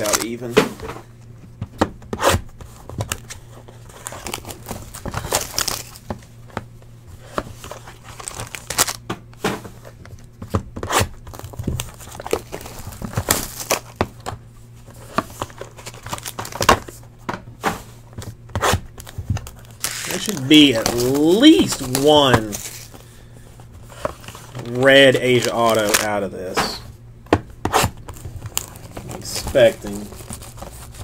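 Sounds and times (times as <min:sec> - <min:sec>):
foil packs crinkling: 0:00.0 - 0:00.5, 0:03.0 - 0:06.2, 0:07.6 - 0:09.0, 0:11.2 - 0:14.2, 0:15.4 - 0:17.0, 0:18.9 - 0:23.3, 0:23.9 - 0:26.8, 0:27.9 - 0:31.0.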